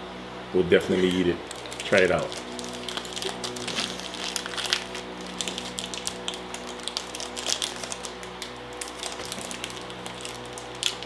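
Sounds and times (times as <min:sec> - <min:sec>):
plastic wrapper crinkling: 0:00.8 - 0:11.0.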